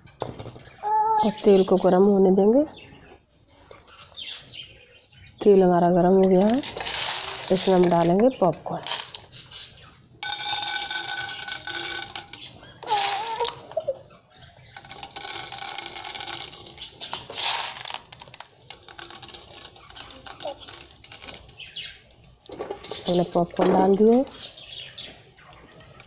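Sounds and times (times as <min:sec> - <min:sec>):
popcorn kernels rattling on metal: 0:06.2 - 0:09.5, 0:10.1 - 0:13.8, 0:14.6 - 0:26.0
oil sizzling: 0:14.8 - 0:26.0.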